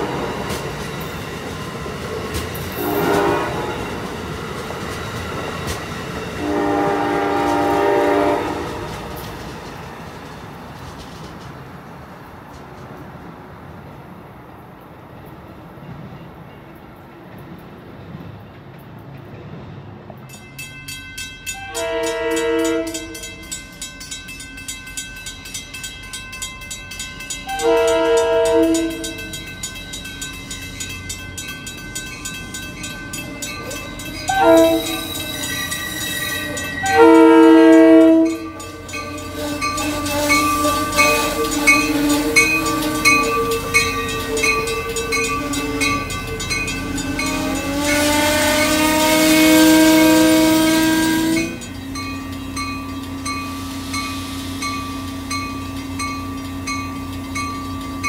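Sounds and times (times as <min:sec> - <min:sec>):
crossing bell ringing: 0:00.0 - 0:09.4, 0:19.3 - 0:58.0
train wheels on rails: 0:00.0 - 0:58.0
train horn blasts: 0:02.7 - 0:04.0, 0:06.4 - 0:09.1, 0:21.5 - 0:23.5, 0:27.4 - 0:29.4, 0:34.2 - 0:51.7.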